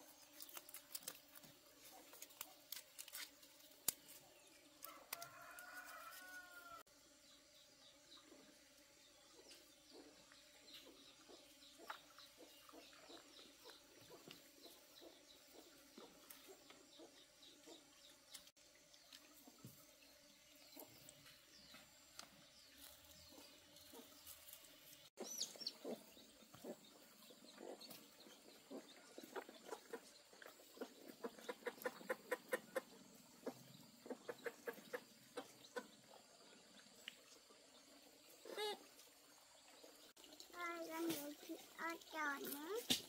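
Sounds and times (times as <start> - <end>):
chickens clucking: 25.2 - 36.2.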